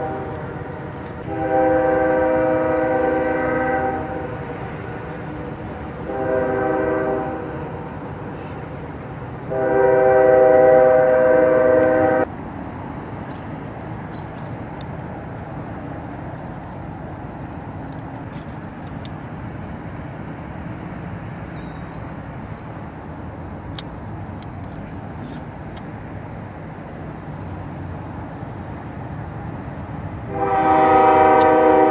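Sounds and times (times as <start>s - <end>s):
multi-note horn blasts: 0.0s - 0.6s, 1.2s - 4.6s, 6.0s - 7.9s, 9.5s - 12.3s, 30.3s - 31.9s.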